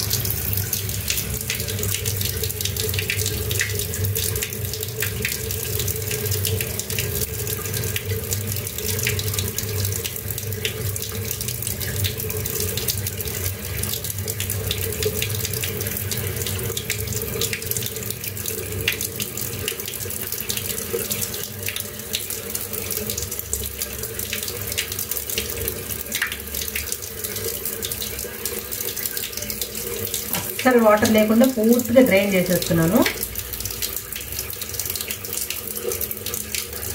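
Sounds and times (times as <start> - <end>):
tap running into sink: 18.8 - 36.9.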